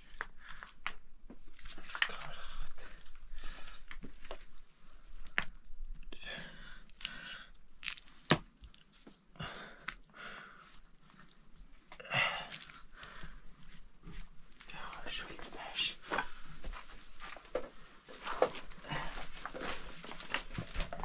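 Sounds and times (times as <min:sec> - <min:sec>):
stones clicking and knocking: 0:00.0 - 0:02.3, 0:03.0 - 0:06.1
wet mud squelching and scraping: 0:06.9 - 0:14.8.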